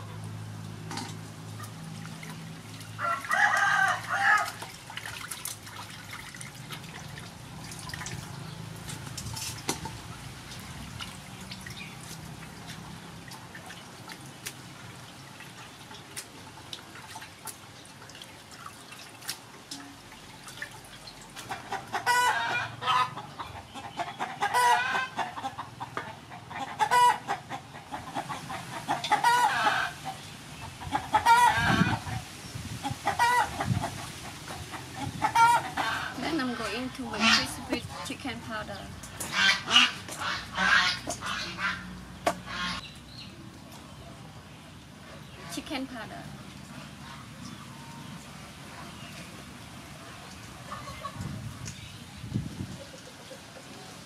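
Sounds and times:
water splashing in metal basin: 0.6 - 22.7
chickens clucking: 21.4 - 43.0, 50.5 - 51.9, 52.6 - 54.0.

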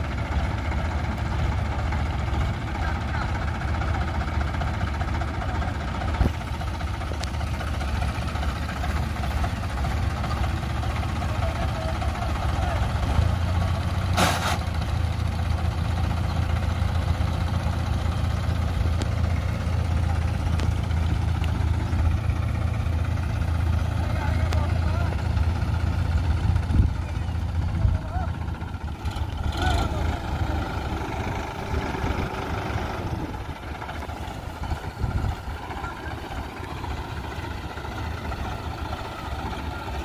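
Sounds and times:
tractor diesel engine running: 0.0 - 40.0
short hiss: 14.2 - 14.7.

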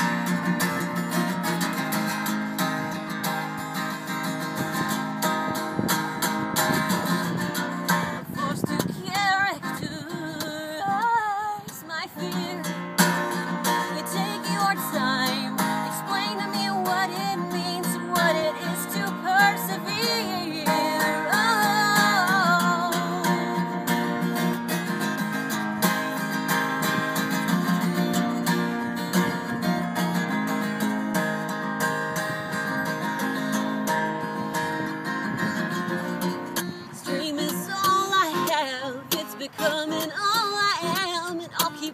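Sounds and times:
acoustic guitar strumming: 0.0 - 41.9
woman singing: 7.8 - 24.3, 36.9 - 41.9.

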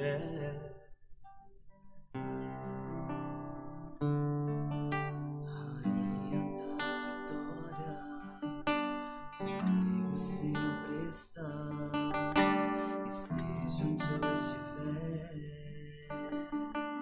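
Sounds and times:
strummed acoustic guitar: 0.0 - 17.0.

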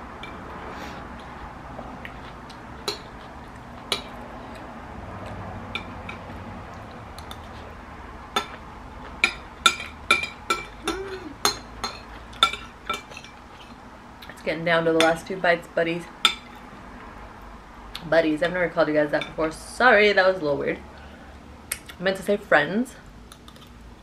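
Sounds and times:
spoon clinking on ceramic bowl: 9.2 - 13.4.

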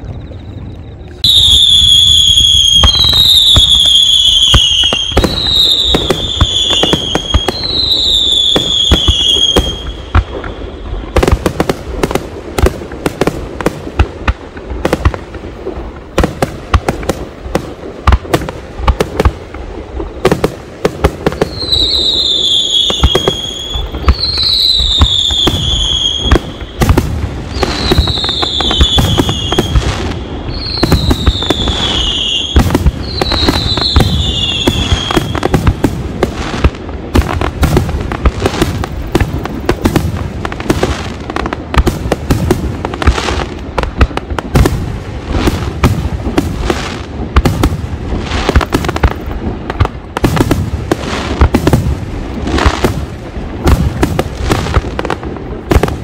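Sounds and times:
falling firework whistle: 0.0 - 12.2, 21.1 - 36.6
fireworks bangs and crackles: 0.0 - 56.0.

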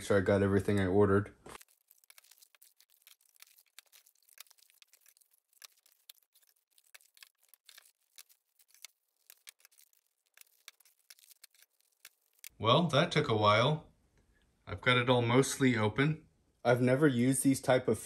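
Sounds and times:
packaging rustling and tearing: 1.5 - 12.5.

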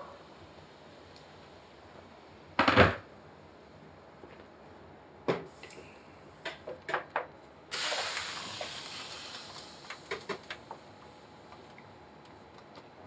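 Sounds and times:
hot pan sizzling: 7.7 - 10.8.

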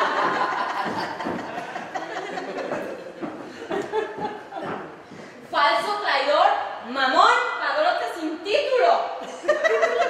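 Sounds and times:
audience laughing: 0.0 - 4.8.

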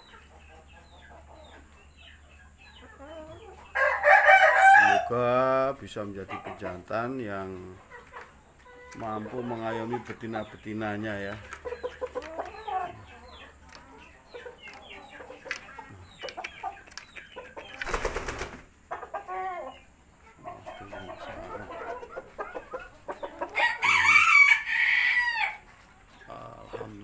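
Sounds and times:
chickens clucking: 0.0 - 27.0
rooster crowing: 3.7 - 5.2, 23.5 - 25.6.

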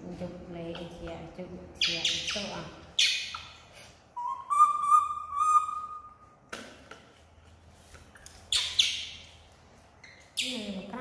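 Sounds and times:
baby monkey cooing: 4.2 - 6.2.

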